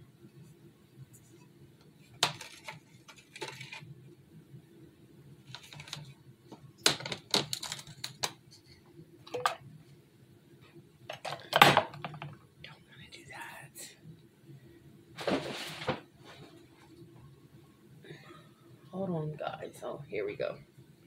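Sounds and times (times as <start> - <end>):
faint low hum: 0.0 - 21.0
glass jars clinking: 9.3 - 9.6.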